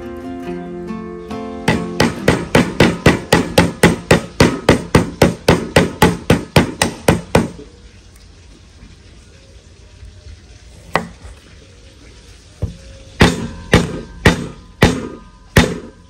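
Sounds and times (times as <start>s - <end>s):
cleaver chopping on wooden block: 1.7s - 7.6s, 12.6s - 15.9s.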